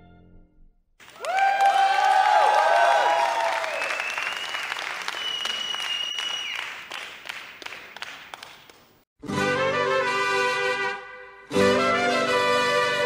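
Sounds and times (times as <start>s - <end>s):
crowd applause: 1.0s - 8.9s
mariachi trumpet playing: 9.2s - 13.0s.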